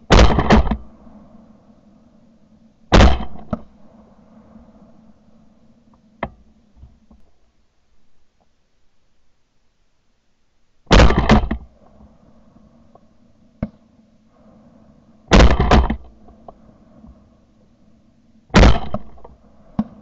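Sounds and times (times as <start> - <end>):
shotgun shots: 0.1 - 0.8, 2.9 - 3.5, 10.9 - 11.6, 15.3 - 16.0, 18.5 - 19.2.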